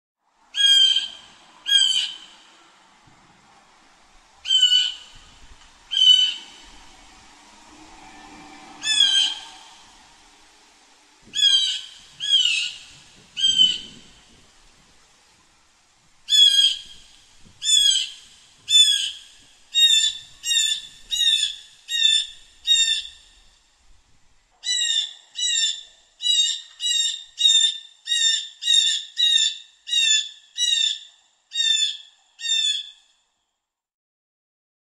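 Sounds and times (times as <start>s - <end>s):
blue jay calls: 0.6s - 2.4s, 4.4s - 5.3s, 5.9s - 6.6s, 11.3s - 14.2s, 16.3s - 23.3s, 24.6s - 33.1s.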